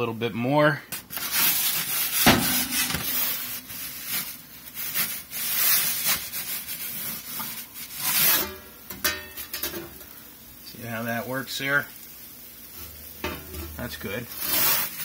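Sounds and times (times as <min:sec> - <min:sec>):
metal pizza peel scraping: 0:01.1 - 0:09.8, 0:12.7 - 0:15.0.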